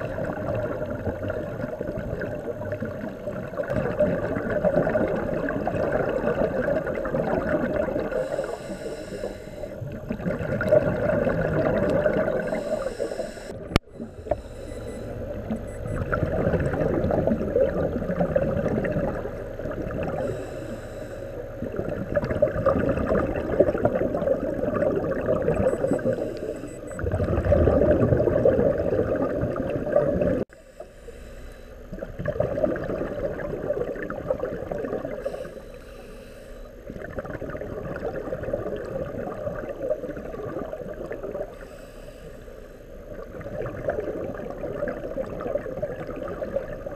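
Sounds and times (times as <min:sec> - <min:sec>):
air bubbles gurgling underwater: 0:00.0 - 0:08.4, 0:09.8 - 0:12.7, 0:15.2 - 0:20.3, 0:21.4 - 0:26.2, 0:26.9 - 0:30.5, 0:31.9 - 0:35.3, 0:36.8 - 0:41.6, 0:43.1 - 0:46.9.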